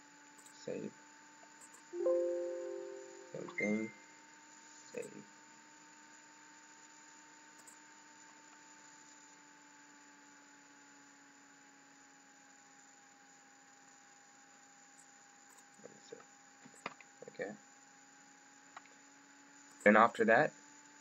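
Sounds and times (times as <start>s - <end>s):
laptop hum with hiss: 0.6s - 1.0s, 18.6s - 21.0s.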